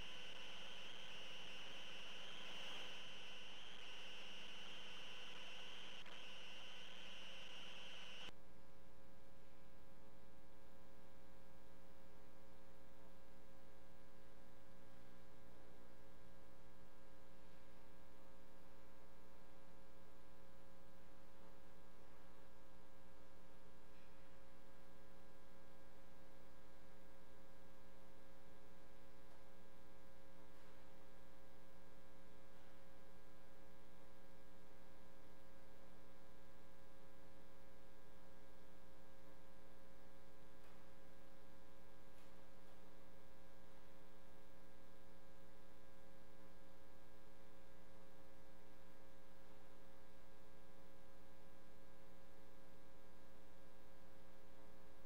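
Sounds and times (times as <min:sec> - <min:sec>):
faint hiss: 0:00.0 - 0:08.3
electrical mains hum: 0:00.0 - 0:55.0.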